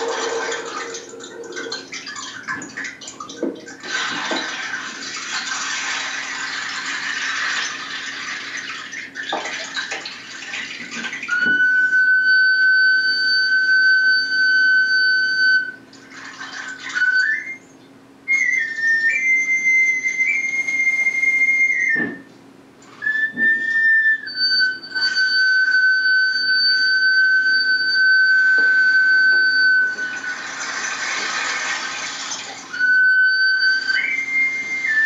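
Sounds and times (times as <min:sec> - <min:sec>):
hand whistle notes: 0:00.0 - 0:01.9, 0:11.3 - 0:15.8, 0:16.9 - 0:22.3, 0:23.0 - 0:30.5, 0:32.7 - 0:35.0.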